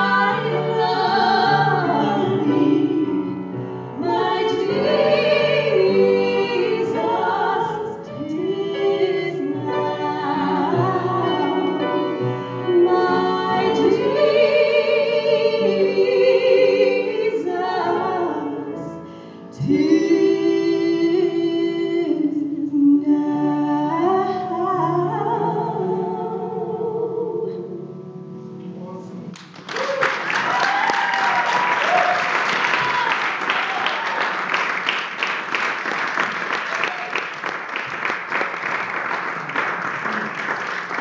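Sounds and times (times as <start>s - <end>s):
women singing in harmony: 0.0s - 28.0s
piano: 0.0s - 41.0s
audience applause: 29.4s - 41.0s.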